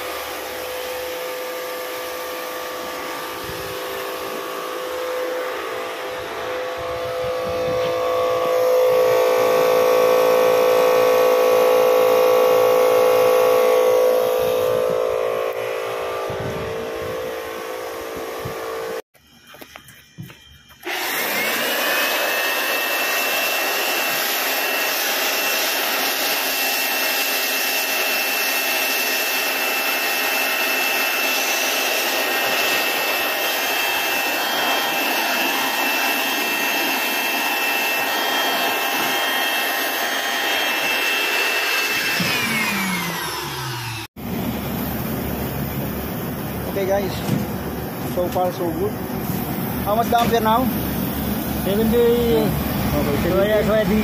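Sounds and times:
air conditioner fan rushing: 0:00.0 - 0:19.0
high whine: 0:00.0 - 0:54.0
motor hum with steady tones: 0:00.0 - 0:54.0.

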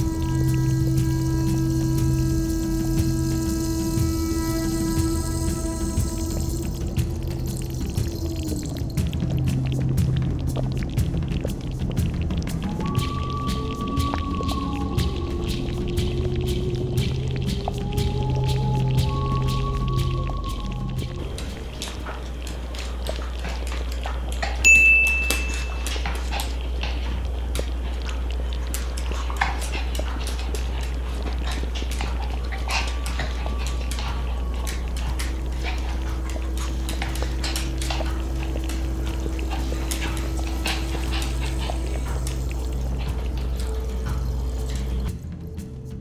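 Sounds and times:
steady low hum: 0:00.0 - 0:46.0.

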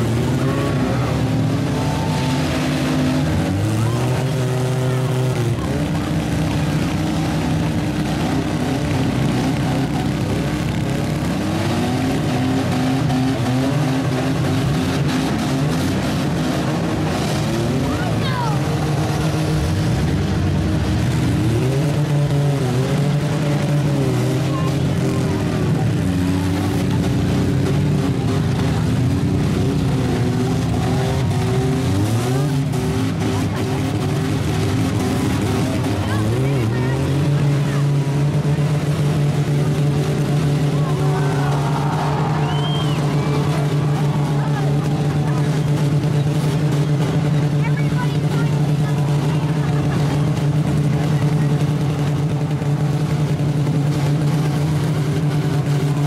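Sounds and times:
vehicle engines revving: 0:00.0 - 0:56.0.

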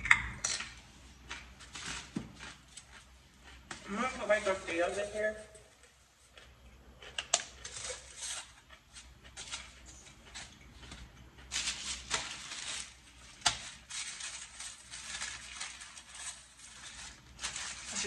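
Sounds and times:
paper wrapping crinkling: 0:07.6 - 0:18.0.

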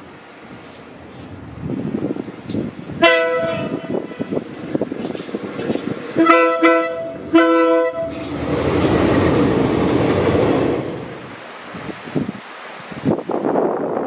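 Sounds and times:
locomotive horn blasts: 0:03.0 - 0:04.5, 0:06.1 - 0:08.4
loud rushing noise: 0:05.2 - 0:13.3.

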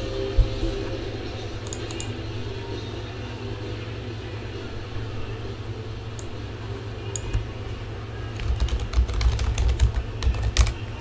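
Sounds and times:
typing on computer keyboard: 0:08.4 - 0:10.8.

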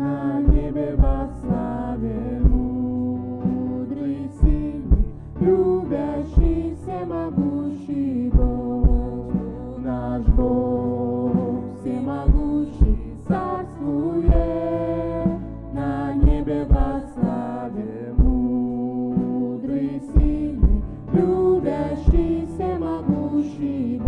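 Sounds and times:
person singing: 0:00.0 - 0:24.0
worship band music: 0:00.0 - 0:24.0
low drum hits: 0:00.5 - 0:01.8, 0:02.4 - 0:03.7, 0:04.4 - 0:07.6, 0:08.3 - 0:09.6, 0:10.2 - 0:11.7, 0:12.3 - 0:13.7, 0:14.3 - 0:15.6, 0:16.2 - 0:17.6, 0:20.2 - 0:23.2.

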